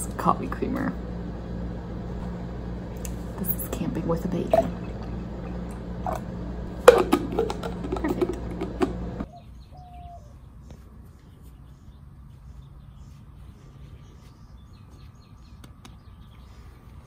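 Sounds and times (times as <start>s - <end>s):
low steady rumble: 0.0s - 9.3s.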